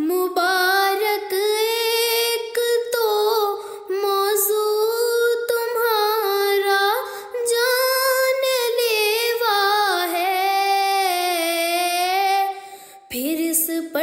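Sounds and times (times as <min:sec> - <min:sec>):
woman singing unaccompanied: 0:00.0 - 0:14.0.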